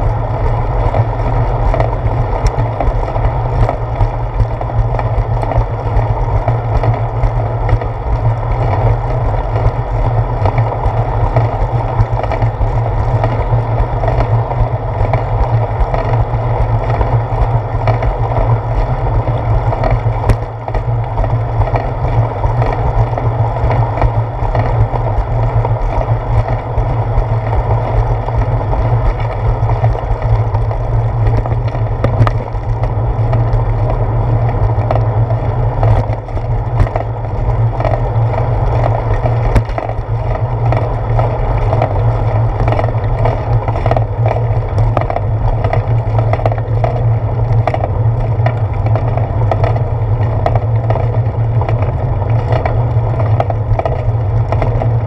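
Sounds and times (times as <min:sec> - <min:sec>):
bicycle rolling on concrete: 0:00.0 - 0:55.0.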